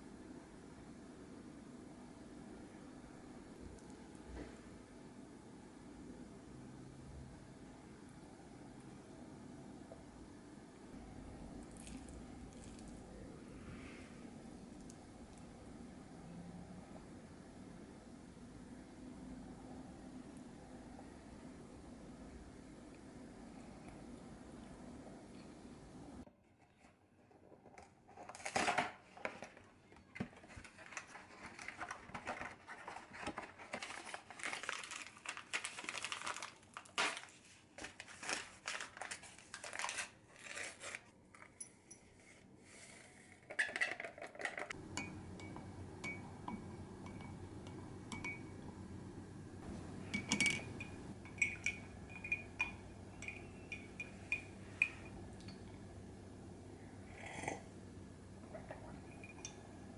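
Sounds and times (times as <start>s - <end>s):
low steady hum: 0.0s - 26.8s, 44.5s - 59.9s
powder poured into a mug: 11.6s - 13.1s
packet crinkling and tearing: 32.6s - 41.1s
spoon clinking against a mug: 44.9s - 48.6s, 50.1s - 55.7s, 58.6s - 59.6s.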